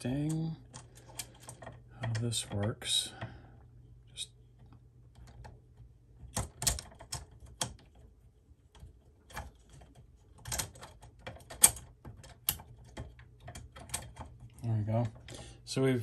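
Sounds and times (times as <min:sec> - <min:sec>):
sharp clicks and knocks: 0:04.6 - 0:15.4.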